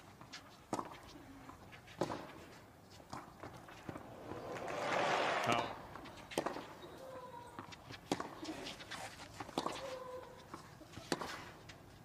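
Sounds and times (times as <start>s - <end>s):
tennis racket hitting ball: 1.9s - 6.8s, 7.6s - 8.5s.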